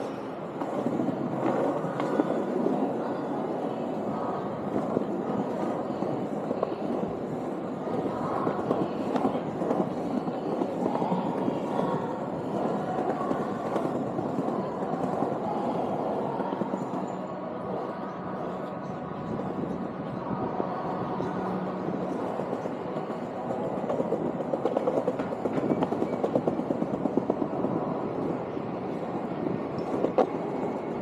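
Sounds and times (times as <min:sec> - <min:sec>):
skateboard wheels rolling on stone: 0:22.0 - 0:28.3.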